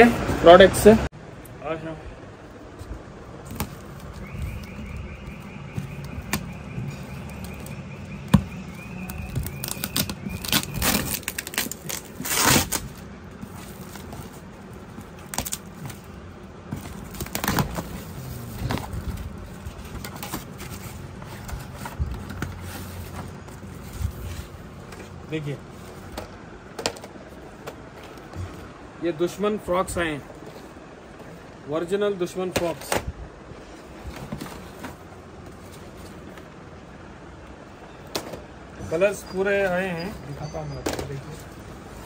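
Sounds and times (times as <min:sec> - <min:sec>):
tape tearing: 0:09.0 - 0:14.4, 0:15.0 - 0:16.1, 0:16.8 - 0:19.2.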